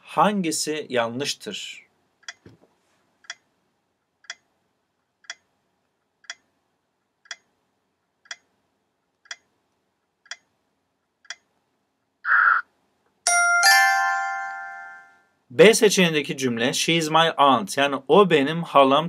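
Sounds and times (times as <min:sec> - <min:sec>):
timer ticking: 0:02.2 - 0:02.4, 0:03.2 - 0:04.6, 0:05.2 - 0:07.6, 0:08.2 - 0:08.6, 0:09.2 - 0:10.6, 0:11.2 - 0:11.6.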